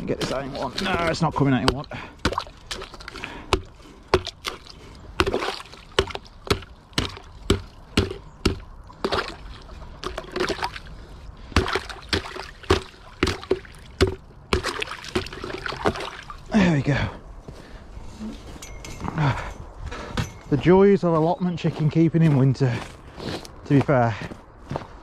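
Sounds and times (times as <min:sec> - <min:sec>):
water sloshing: 0:00.0 - 0:16.6
ice chunks knocking: 0:00.2 - 0:10.8, 0:11.5 - 0:16.2
hammer knocking on ice: 0:03.5 - 0:04.5, 0:05.2 - 0:08.7, 0:11.6 - 0:15.4.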